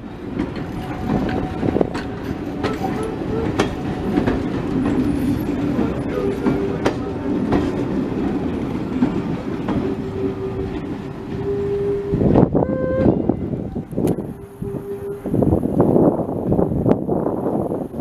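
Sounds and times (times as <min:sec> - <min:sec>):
train wheels clicking over rail joints: 0:00.0 - 0:14.6
railway coaches rumbling: 0:00.0 - 0:18.0.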